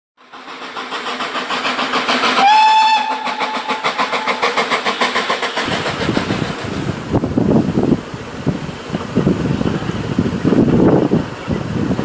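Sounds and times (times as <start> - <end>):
steam locomotive exhaust beating: 0.2 - 12.0
steam whistle: 2.2 - 4.6.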